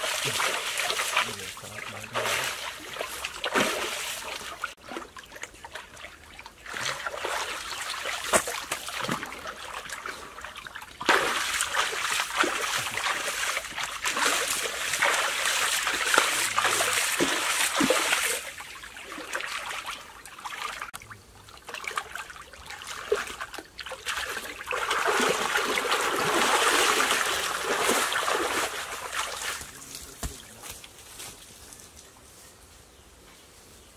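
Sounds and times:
water splashing in pool: 0:00.0 - 0:30.5.

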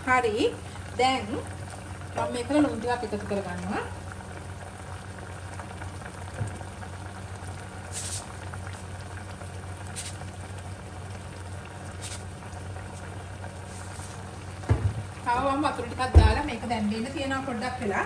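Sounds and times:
curry bubbling in saucepan: 0:00.0 - 0:18.0
brief high hiss: 0:07.9 - 0:08.3.

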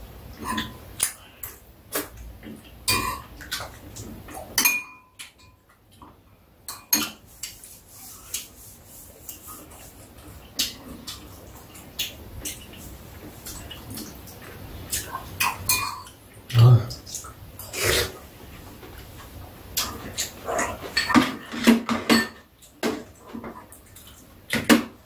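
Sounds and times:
utensils clinking on ceramic bowls: 0:04.6 - 0:05.7, 0:15.4 - 0:16.2, 0:20.8 - 0:22.5.

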